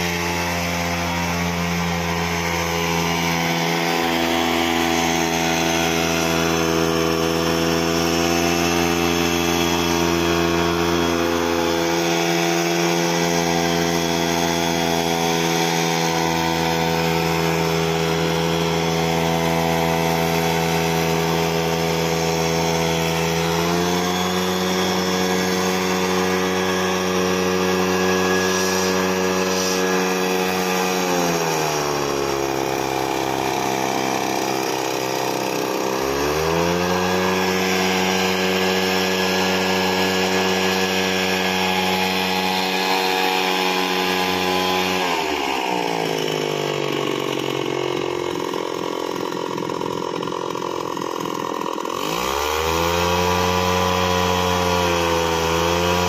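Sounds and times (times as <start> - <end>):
leaf blower engine blasting air: 0.0 - 56.0.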